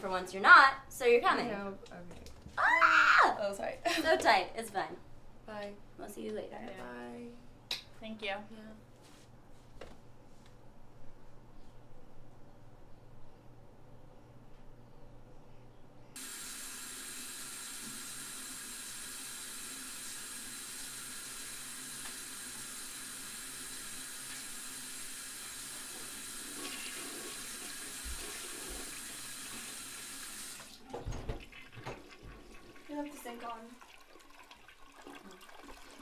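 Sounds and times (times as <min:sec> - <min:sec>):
water running from tap: 0:16.2 - 0:36.0.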